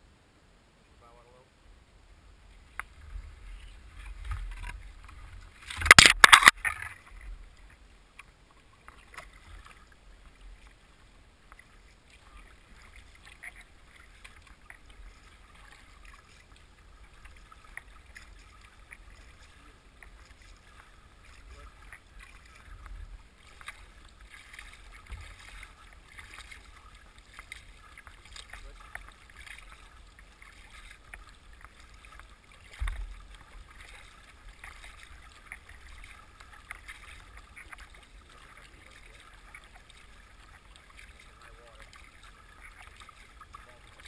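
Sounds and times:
water lapping at hull: 2.1s - 44.0s.

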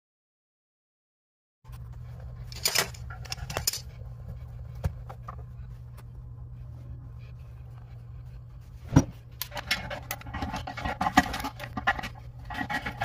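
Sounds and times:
steady low hum: 1.7s - 13.0s.

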